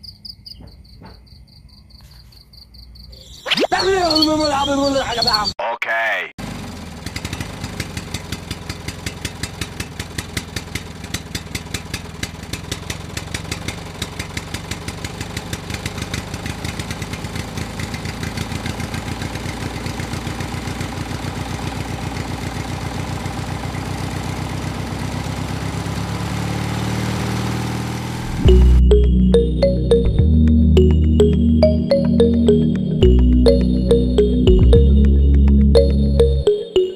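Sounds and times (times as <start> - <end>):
engine chugging and revving: 6.4 - 30.0.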